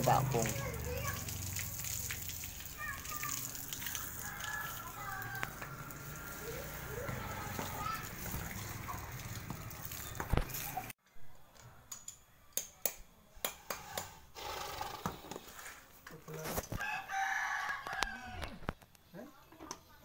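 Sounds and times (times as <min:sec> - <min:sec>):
hose water spraying: 0:00.0 - 0:11.0
rooster crowing: 0:03.7 - 0:07.6, 0:16.8 - 0:18.6.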